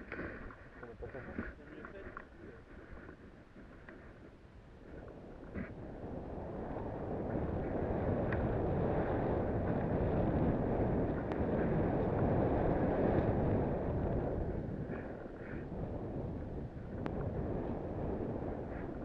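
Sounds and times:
wind rushing over microphone: 4.3s - 19.0s.

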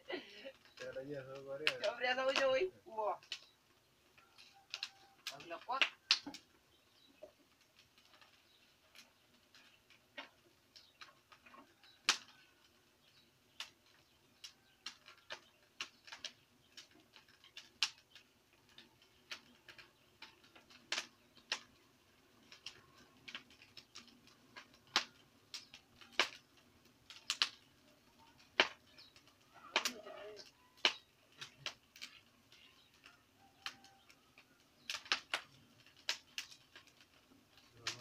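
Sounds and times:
wood fire crackling and popping: 0.0s - 38.0s.

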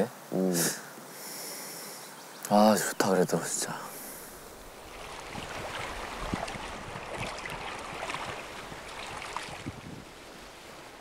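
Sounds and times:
waves lapping on stony shore: 3.9s - 11.0s
wind on microphone: 4.3s - 11.0s.

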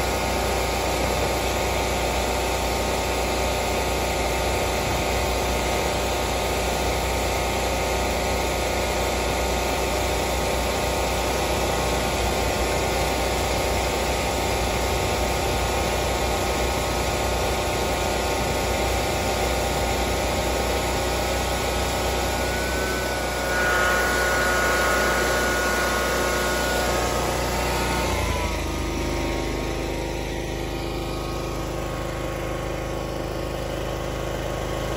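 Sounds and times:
snow plow engine running: 0.0s - 34.9s
high whine: 9.1s - 33.7s.

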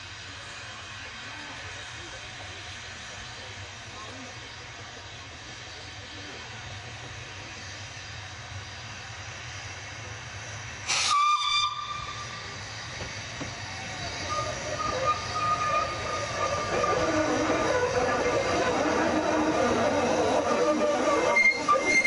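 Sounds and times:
approaching steam train: 0.0s - 22.0s
steam hissing: 0.0s - 22.0s
steam whistle blast: 10.9s - 12.4s, 14.2s - 17.7s, 20.8s - 22.0s.

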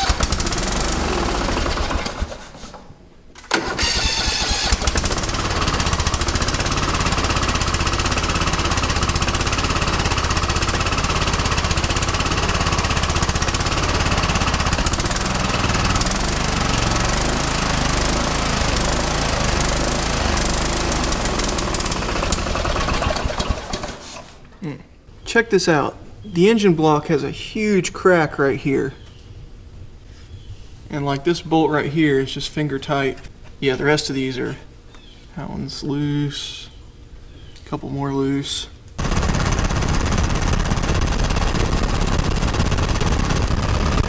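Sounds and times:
mower engine cranking and running: 0.0s - 2.8s, 3.4s - 24.4s, 39.0s - 44.0s.

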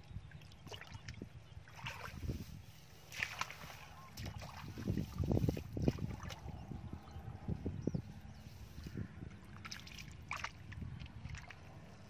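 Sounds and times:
wind buffeting microphone: 0.0s - 12.0s
hands splashing in muddy water: 0.5s - 6.5s, 9.5s - 11.8s.

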